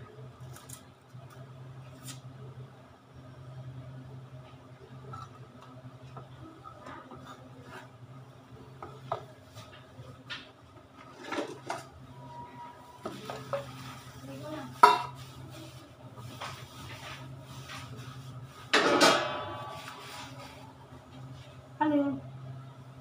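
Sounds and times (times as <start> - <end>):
low steady hum: 0.0 - 23.0
metal bowl and utensils handled: 11.0 - 12.0, 14.7 - 15.3, 18.7 - 20.7
sharp metal clank: 18.8 - 19.8.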